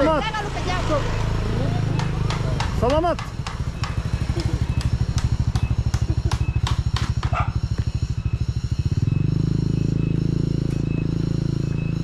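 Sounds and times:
small motorcycle engine revving: 3.6s - 12.0s.

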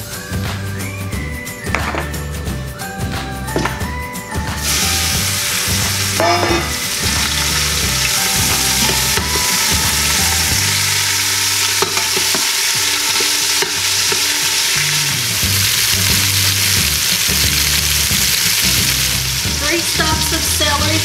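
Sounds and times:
beef sizzling in oil: 0.9s - 21.0s
utensil clinking against pot: 6.2s - 9.8s, 11.6s - 14.5s.

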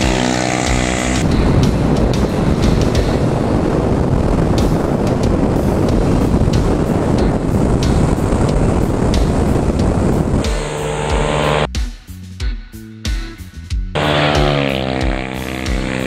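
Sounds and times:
scooter engine running: 0.0s - 1.3s, 9.3s - 11.7s, 14.0s - 16.0s
music track: 0.0s - 11.8s, 14.0s - 16.0s
wind buffeting microphone: 1.2s - 11.7s.

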